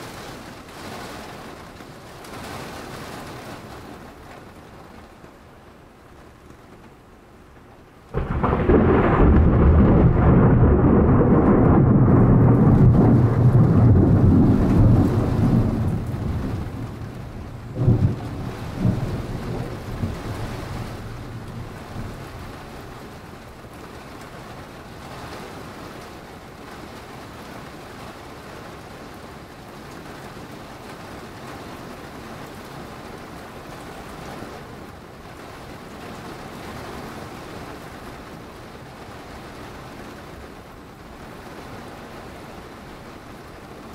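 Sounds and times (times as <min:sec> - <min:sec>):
steady rain falling: 0:00.0 - 0:43.9
sharp thunder cracks: 0:08.1 - 0:22.5
thunder rumbling: 0:08.1 - 0:24.0.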